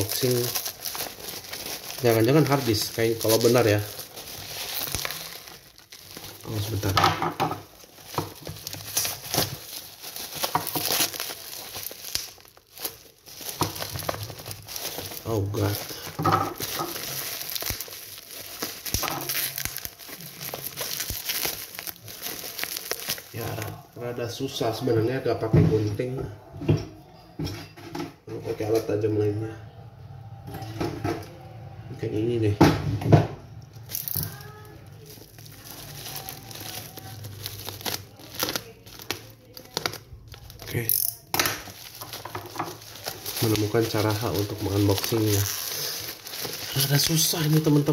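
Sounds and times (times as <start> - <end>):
plastic wrapping crinkling: 0.0 - 25.2, 33.6 - 47.9.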